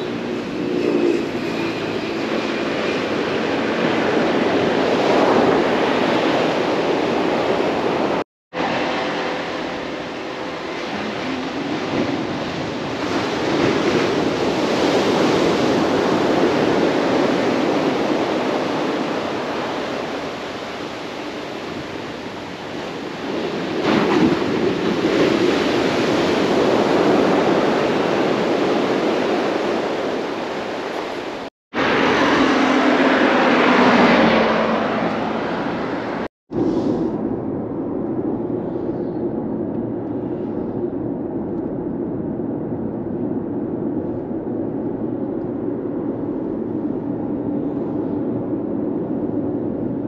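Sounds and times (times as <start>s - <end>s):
sea surf breaking on shore: 1.3s - 37.2s
vehicle engine passing by: 31.8s - 36.3s.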